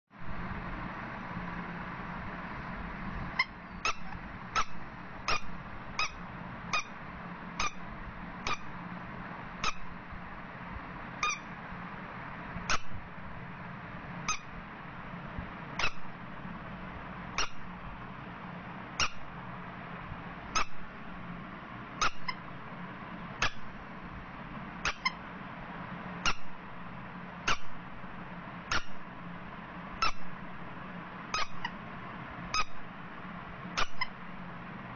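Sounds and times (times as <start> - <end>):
steady low hum: 0.1 - 34.9
rubber duck toy squeaks: 3.4 - 6.2, 6.8 - 7.0, 7.6 - 7.8, 8.5 - 8.7, 11.2 - 11.5, 14.3 - 14.5, 15.8 - 16.0, 17.4 - 17.6, 19.0 - 19.2, 22.0 - 22.4, 24.8 - 25.2, 28.7 - 29.0, 30.0 - 30.2, 31.4 - 31.8, 32.5 - 32.8, 33.8 - 34.2.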